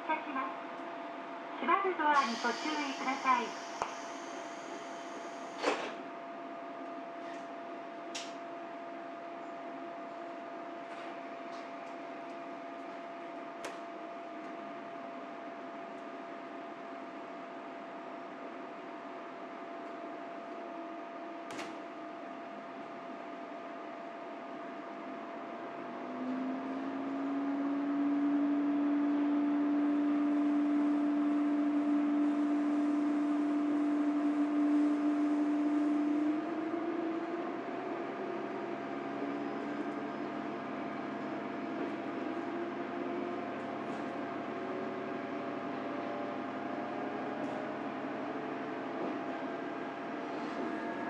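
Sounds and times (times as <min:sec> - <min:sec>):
diesel railcar engine drone: 0:00.0 - 0:51.0.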